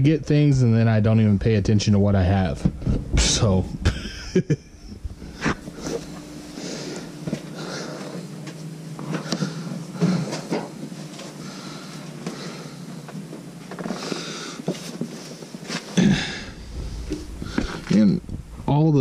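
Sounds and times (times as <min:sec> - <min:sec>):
boxes rustling and knocking: 0:07.0 - 0:12.4, 0:13.2 - 0:16.0.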